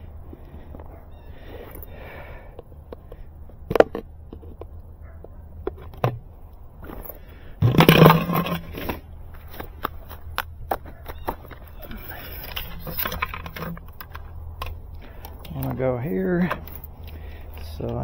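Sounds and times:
plastic cover scraping: 0:07.6 - 0:09.1, 0:11.4 - 0:14.3.

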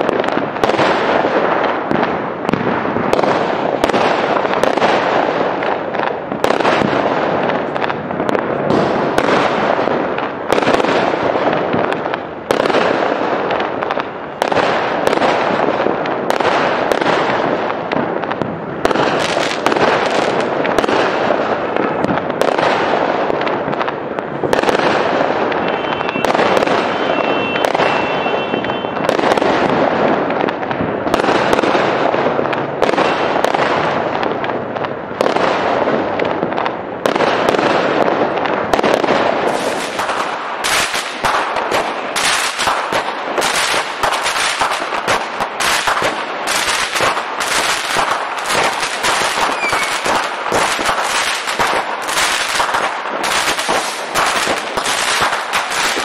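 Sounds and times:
firework shells bursting: 0:00.0 - 0:34.6, 0:37.2 - 0:56.0.

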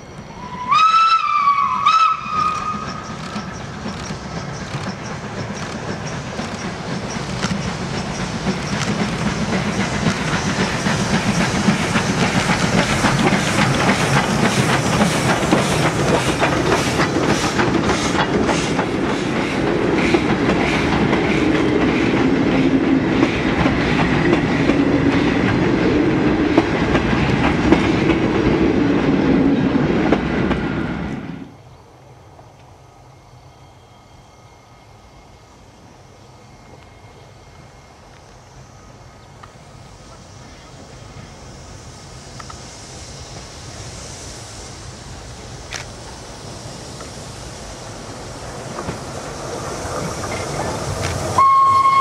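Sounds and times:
steam locomotive exhaust beats: 0:00.3 - 0:31.4, 0:32.4 - 0:52.0
wheels clattering over rail joints: 0:02.2 - 0:28.5.

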